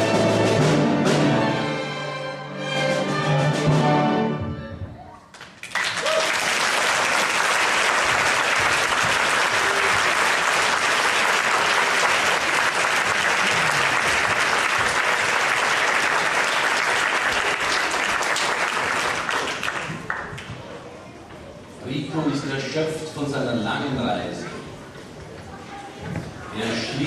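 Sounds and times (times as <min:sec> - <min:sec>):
audience applauding: 0:05.3 - 0:20.5.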